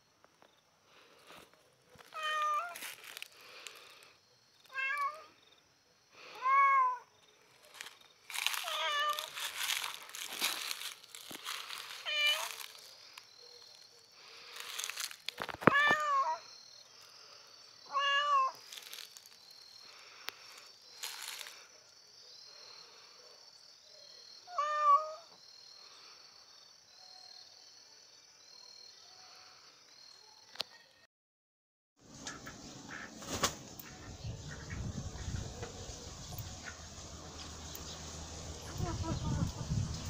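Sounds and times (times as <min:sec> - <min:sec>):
rustling: 0:01.0 - 0:05.1, 0:07.4 - 0:16.2, 0:18.6 - 0:21.7
cat meowing: 0:02.1 - 0:02.8, 0:04.7 - 0:05.3, 0:06.4 - 0:07.0, 0:08.6 - 0:09.4, 0:12.0 - 0:12.6, 0:15.6 - 0:16.4, 0:17.9 - 0:18.6, 0:24.5 - 0:25.3.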